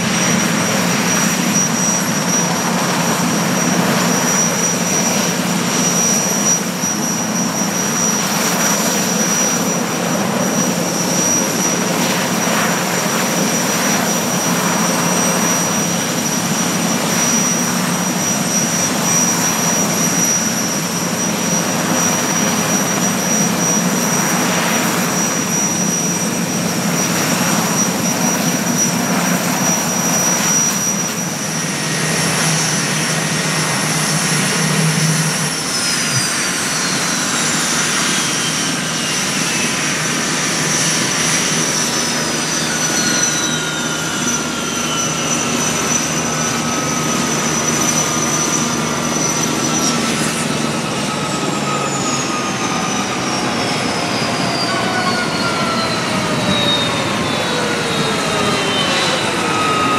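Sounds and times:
helicopter rotor rush: 0:00.0 - 0:59.9
helicopter turbine whine: 0:00.0 - 0:59.9.

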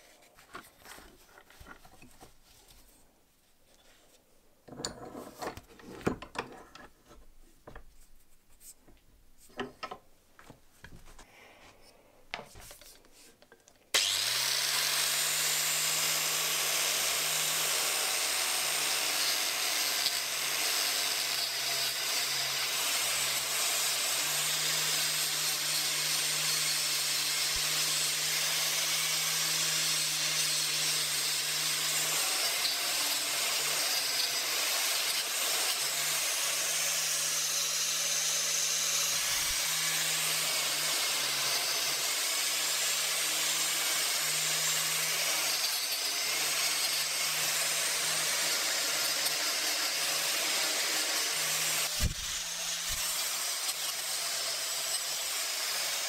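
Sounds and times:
angle grinder humming: 0:14.0 - 0:56.0.

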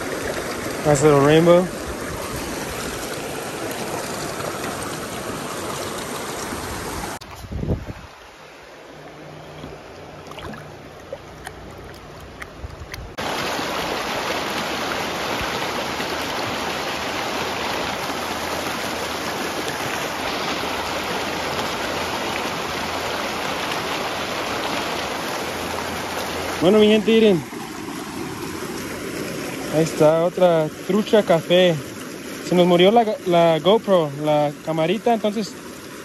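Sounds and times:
creek water rushing over rocks: 0:00.0 - 0:36.0.

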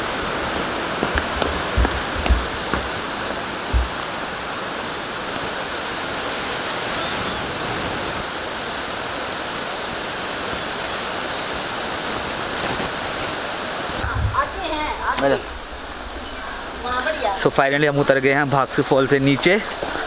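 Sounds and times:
rushing waterfall and stream: 0:00.0 - 0:20.0
low thump: 0:03.7 - 0:04.0, 0:14.0 - 0:14.6.

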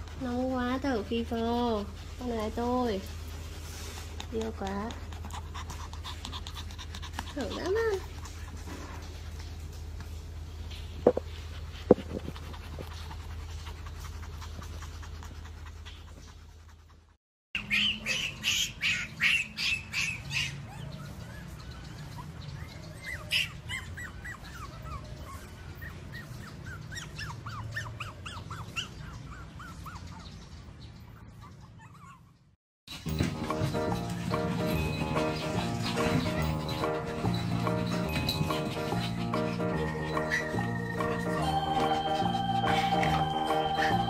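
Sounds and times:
puppies whining: 0:17.6 - 0:44.0
puppies yapping: 0:17.6 - 0:44.0
low hum: 0:33.1 - 0:44.0.

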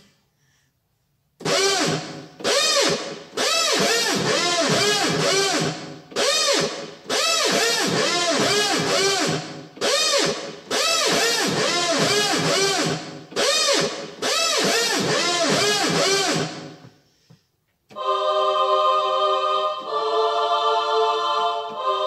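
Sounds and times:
synthesizer with swooping pitch: 0:01.5 - 0:16.8.

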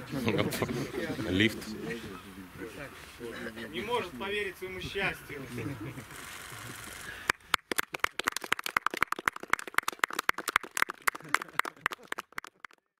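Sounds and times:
small group clapping: 0:07.2 - 0:13.0.

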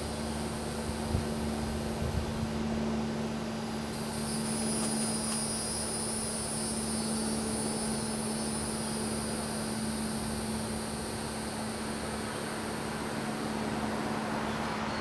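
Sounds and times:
low mechanical hum: 0:00.0 - 0:15.0
high-pitched insect buzzing: 0:04.0 - 0:12.5.

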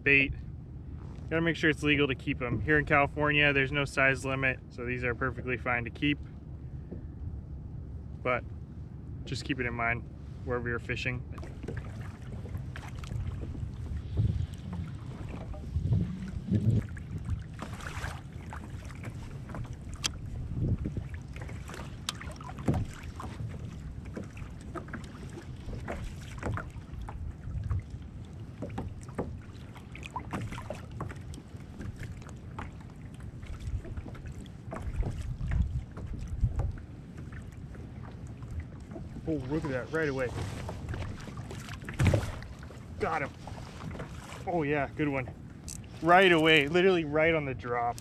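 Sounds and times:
water lapping against kayak hull: 0:00.0 - 0:10.6, 0:11.2 - 0:48.0
wind buffeting microphone: 0:11.2 - 0:29.5, 0:33.3 - 0:48.0.

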